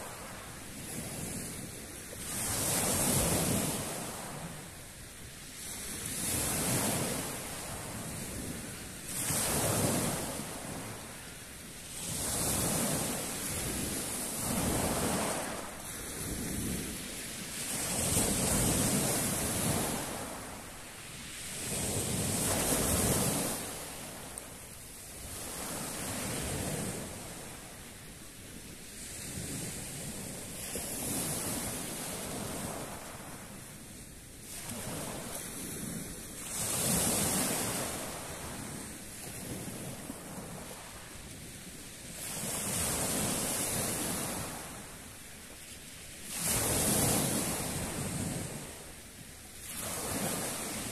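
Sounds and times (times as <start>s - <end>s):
waves washing over pebbles: 0.0s - 27.8s, 46.2s - 48.8s, 49.6s - 50.9s.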